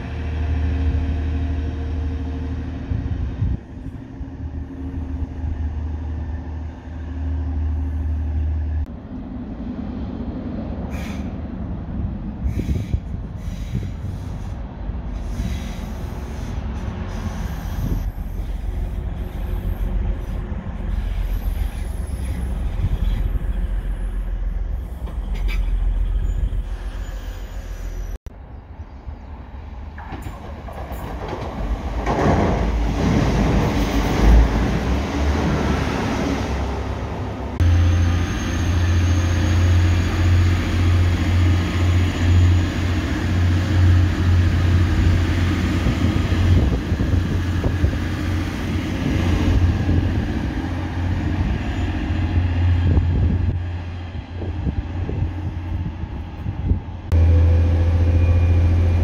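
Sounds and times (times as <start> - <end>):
rail rumble: 0.0 - 59.0
train diesel engine humming: 0.0 - 59.0
brief squeals: 17.2 - 28.2.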